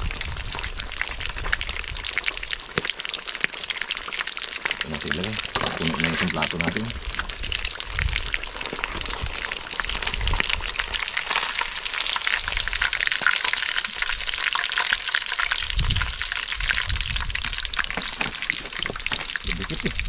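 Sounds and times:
fish sizzling in hot oil: 0.0 - 20.0.

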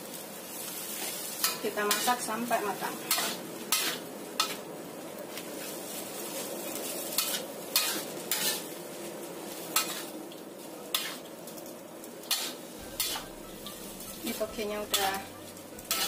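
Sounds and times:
food sizzling in a pan: 0.0 - 16.0
spatula scraping a pan: 3.0 - 4.6, 5.6 - 8.8, 9.5 - 10.1, 10.9 - 11.3, 12.2 - 16.0.

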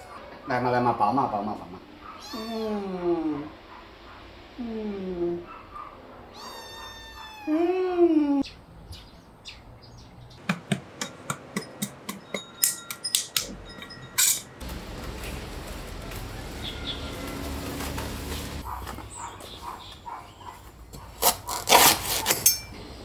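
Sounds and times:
kitten meowing: 2.2 - 3.0, 6.3 - 7.7
sharp clicks and taps: 10.4 - 13.5.

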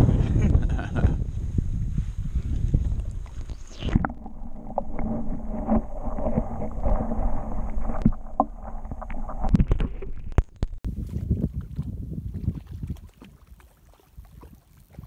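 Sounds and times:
underwater sloshing and bubbling: 2.8 - 10.8.

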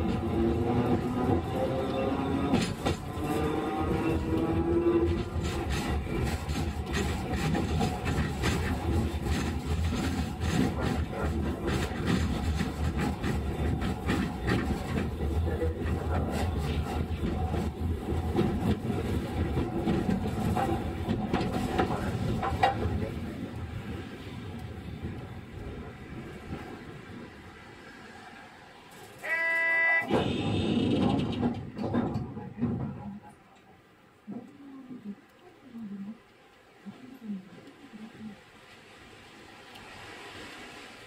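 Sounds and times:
track knocks and rattles: 0.0 - 27.4, 30.0 - 34.5
wheels rumbling on rail: 0.0 - 35.3, 36.1 - 41.0.

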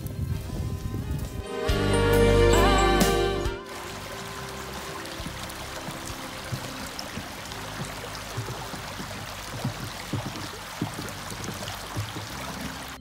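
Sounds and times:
brook running over rocks: 3.6 - 13.0.

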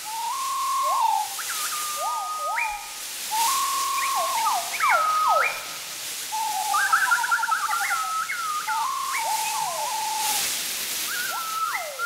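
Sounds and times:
high sliding whistles: 0.0 - 12.0
soft hissing rustle: 0.0 - 12.0.

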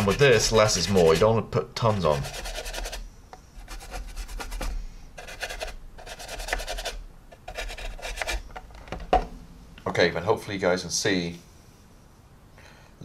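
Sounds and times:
paintbrush scrubbing on plastic: 0.0 - 3.0, 3.6 - 8.4.

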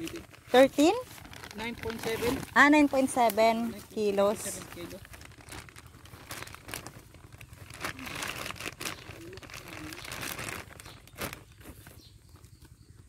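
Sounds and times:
dry crinkling and crackling: 0.0 - 13.0.

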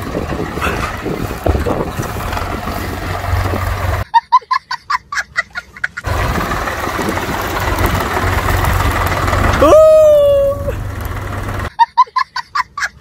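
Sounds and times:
tractor diesel engine running: 0.0 - 4.0, 5.8 - 11.8.

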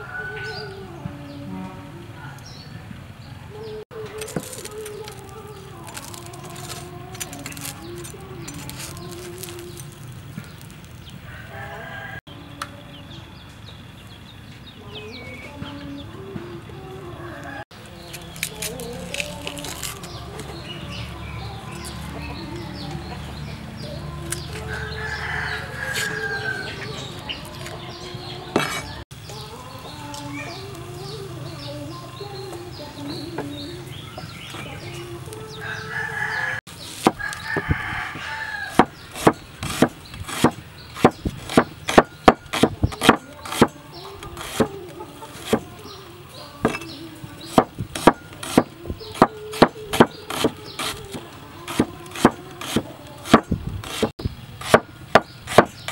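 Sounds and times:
roosters crowing: 0.0 - 1.4, 3.5 - 13.5, 14.8 - 55.9
outdoor background noise: 0.0 - 55.9
cleaver chopping on wooden board: 28.6 - 28.9, 37.0 - 37.9, 38.7 - 43.8, 44.4 - 44.8, 45.4 - 45.7, 47.5 - 55.8.

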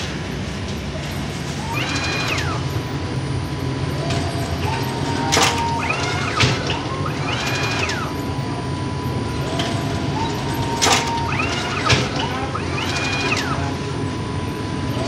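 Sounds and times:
dough machine humming: 0.0 - 15.0.

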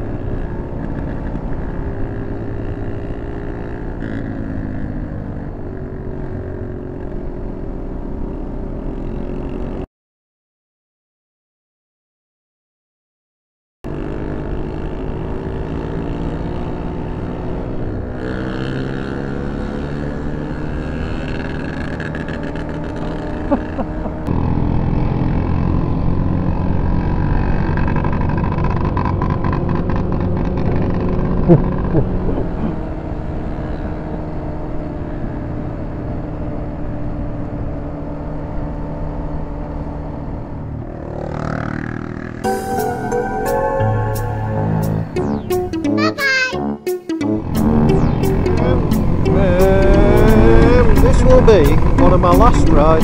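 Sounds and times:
motorcycle engine running: 13.9 - 42.6, 47.4 - 53.0.

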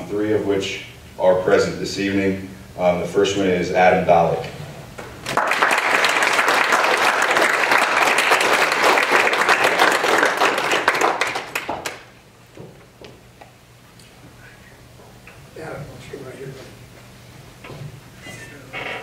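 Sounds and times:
crowd applauding: 5.3 - 12.1.

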